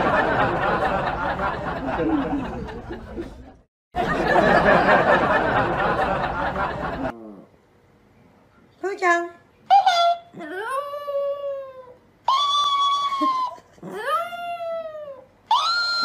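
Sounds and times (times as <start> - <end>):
audience laughter: 0.0 - 7.1.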